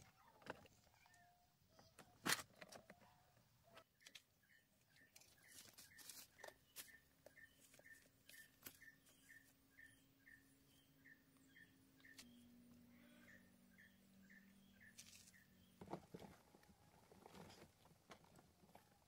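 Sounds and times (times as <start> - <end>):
faint high chirp: 4.0 - 15.8.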